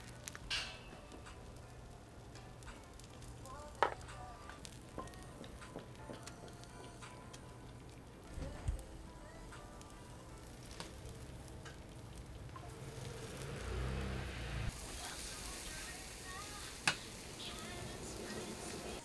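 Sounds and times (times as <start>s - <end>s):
batter sizzling in hot mould: 0.0s - 19.0s.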